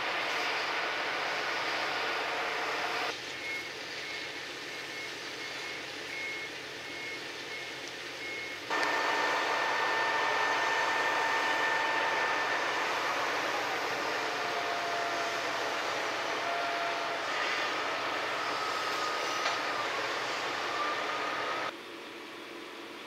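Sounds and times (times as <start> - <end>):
mechanical hum with whine: 0.0 - 23.0
vehicle warning beeper: 3.4 - 21.7
machinery background: 8.2 - 21.8.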